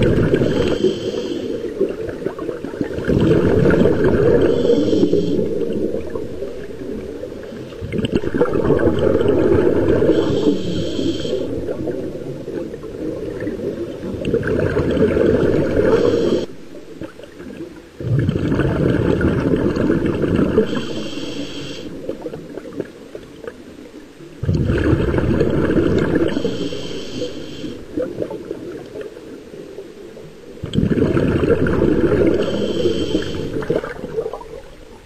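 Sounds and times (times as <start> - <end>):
regulator hiss: 0.0 - 1.9, 3.8 - 7.6, 8.3 - 12.6, 15.4 - 16.8, 20.5 - 22.3, 25.7 - 28.2, 32.0 - 33.8
underwater exhaled bubbles: 0.0 - 35.0.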